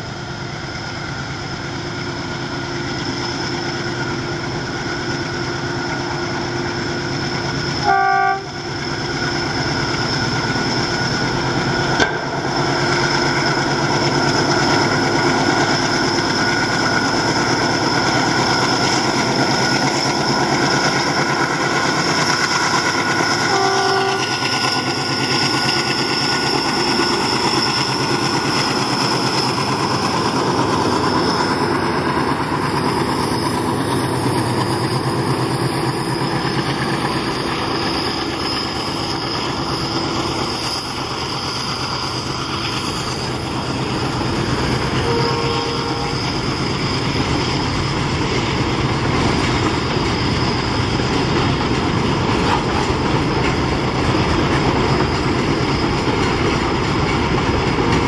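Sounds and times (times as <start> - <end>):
diesel locomotive engines droning: 0.0 - 58.0
locomotive horn toot: 7.8 - 8.7, 23.4 - 24.4, 45.0 - 46.5.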